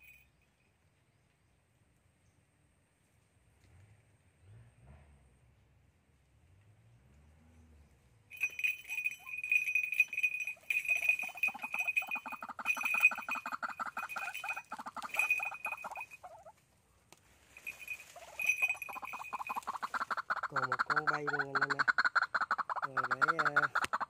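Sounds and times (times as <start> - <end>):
waterhens croaking: 10.5 - 16.5, 18.0 - 24.0.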